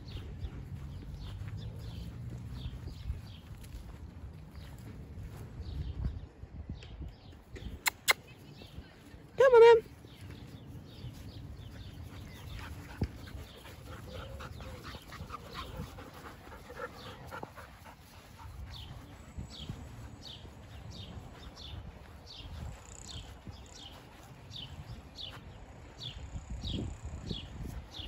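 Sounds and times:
dog panting: 12.0s - 19.6s.

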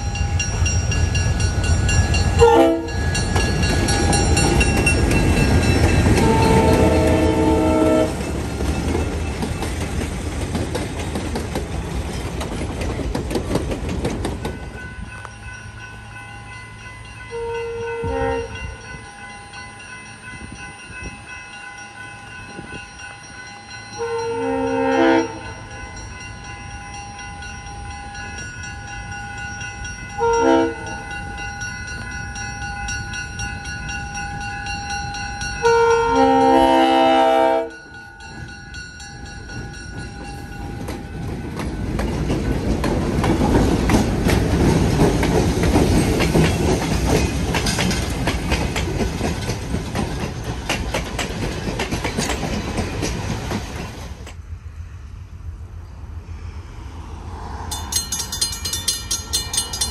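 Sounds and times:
diesel train rumbling: 0.0s - 59.9s
train air horn: 2.4s - 3.0s, 6.2s - 8.3s, 17.3s - 18.8s, 24.0s - 25.6s, 30.2s - 30.9s, 35.6s - 37.8s.

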